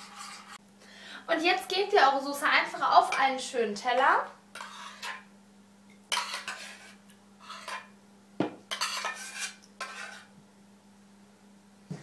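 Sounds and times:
metal spoon scraping pot: 0:00.0 - 0:00.6, 0:04.5 - 0:05.2, 0:06.1 - 0:07.9, 0:08.7 - 0:10.3.

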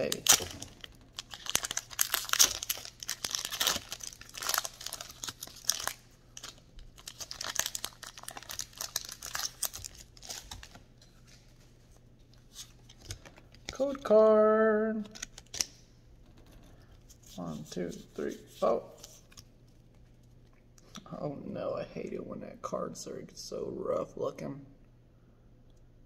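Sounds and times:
foil wrapper tearing and crinkling: 0:00.0 - 0:10.8.

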